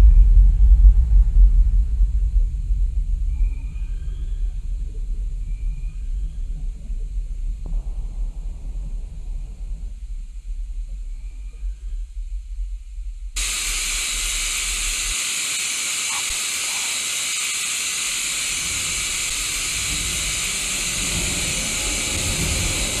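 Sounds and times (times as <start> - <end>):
low rumble: 0.0 - 15.2, 18.2 - 23.0
television static hiss: 13.4 - 23.0.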